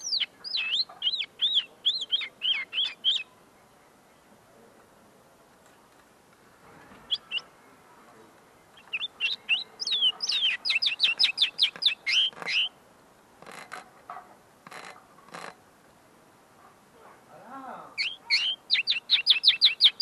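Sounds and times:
linnet singing: 0.0s - 3.3s, 7.1s - 7.5s, 8.7s - 12.8s, 18.0s - 20.0s.

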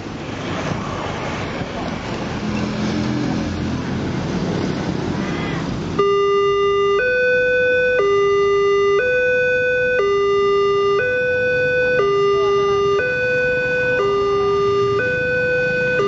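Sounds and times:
motorbike engines: 0.0s - 16.0s
road traffic: 0.0s - 16.0s
level crossing alarm two-tone signal: 6.0s - 16.0s.

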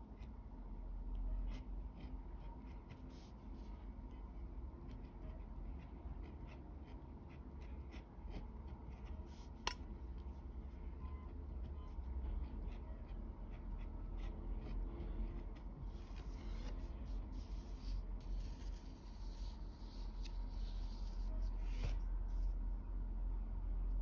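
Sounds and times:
low steady hum: 0.0s - 24.0s.

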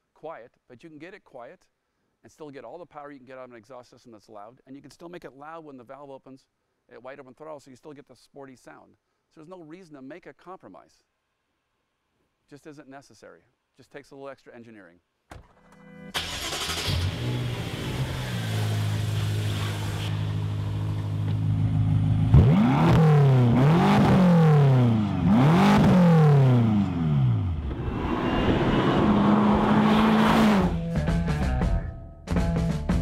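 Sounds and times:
car engine revving: 16.2s - 30.9s.

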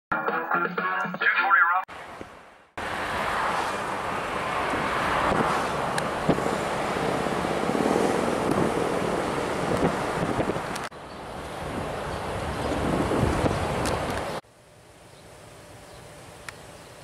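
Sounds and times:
wind on microphone: 8.0s - 10.9s, 11.7s - 14.4s.

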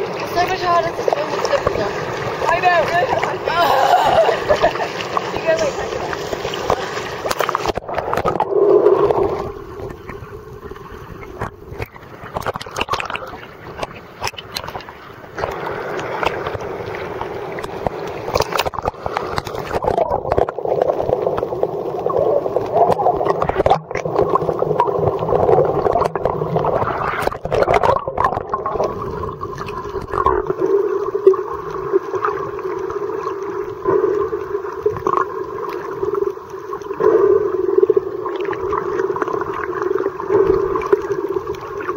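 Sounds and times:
underwater gurgling water: 0.0s - 41.9s.

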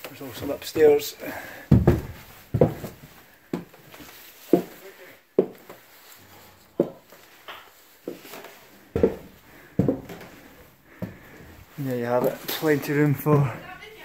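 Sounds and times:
footsteps on wooden stairs: 0.0s - 14.0s.

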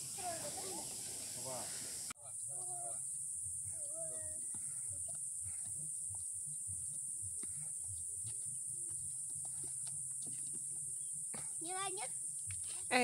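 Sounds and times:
forest insects droning: 0.0s - 13.0s
footsteps on dirt trail: 3.4s - 13.0s.

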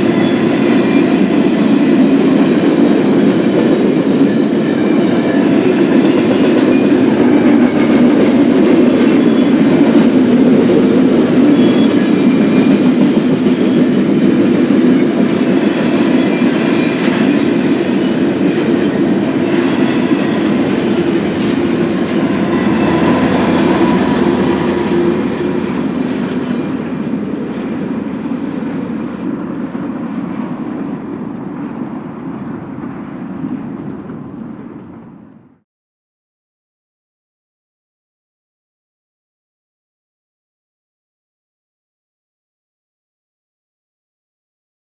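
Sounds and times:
freight train wheels rumbling: 0.0s - 35.6s.

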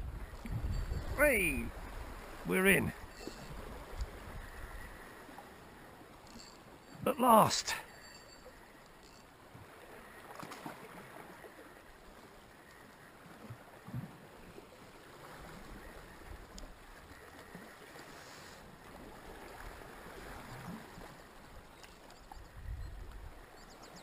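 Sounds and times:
sea water lapping against rocks: 9.5s - 22.2s.

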